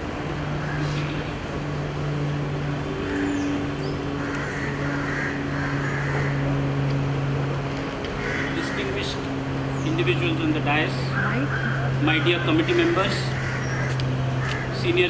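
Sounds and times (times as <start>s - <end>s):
steady low hum: 0.0s - 15.0s
faint calls: 2.9s - 6.7s, 8.1s - 15.0s.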